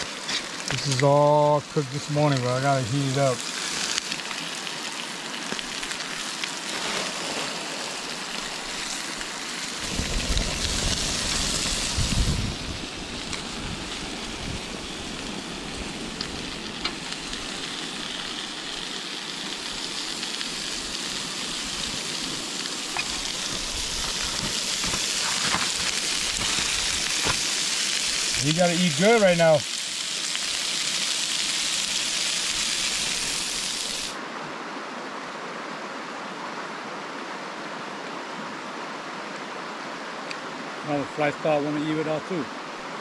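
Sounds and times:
food sizzling on a grill: 0.0 - 34.2.

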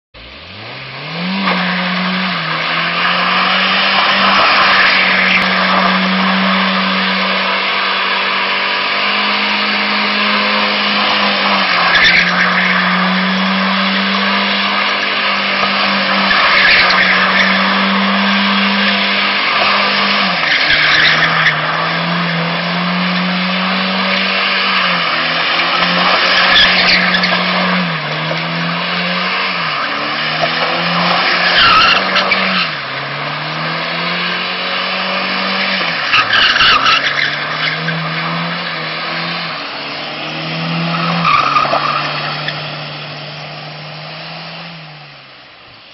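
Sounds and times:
car engine revving high: 0.2 - 45.4
tyres squealing: 29.4 - 33.1, 35.4 - 42.7.

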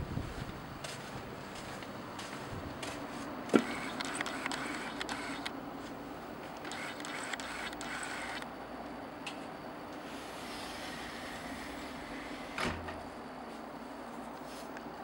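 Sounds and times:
faint hum: 0.0 - 15.0
low hiss: 8.2 - 15.0.

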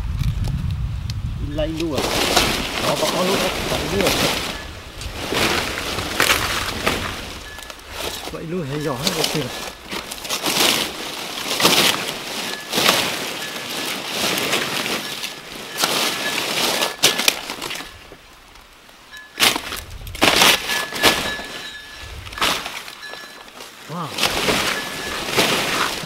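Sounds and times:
leaves rustling: 0.0 - 26.0
knife chopping plant stalks: 1.8 - 4.6.

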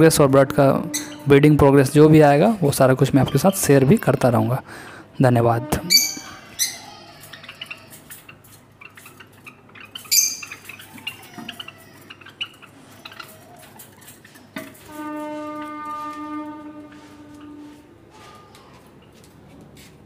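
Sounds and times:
sparrows chirping: 0.0 - 4.9, 5.7 - 14.9.

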